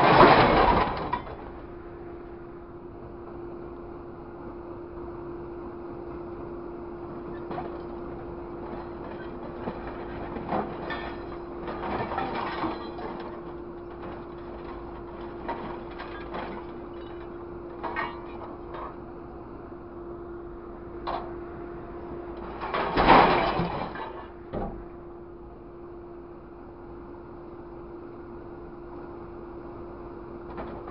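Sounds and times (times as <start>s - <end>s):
scrap metal crashing: 0.0s - 1.4s, 8.8s - 19.0s, 22.4s - 24.4s
grab clanking on scrap metal: 0.0s - 1.5s, 8.7s - 19.0s, 22.4s - 24.8s
truck engine and hydraulics hum: 0.0s - 30.9s.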